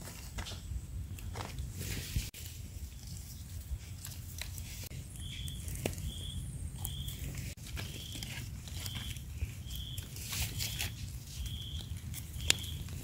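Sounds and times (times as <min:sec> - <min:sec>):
rustling in dry leaves: 0:00.0 - 0:13.0.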